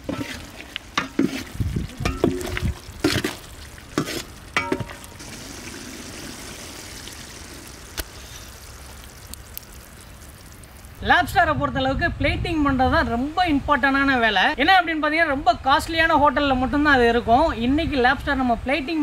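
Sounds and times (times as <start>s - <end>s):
curry sizzling: 0.0s - 11.0s.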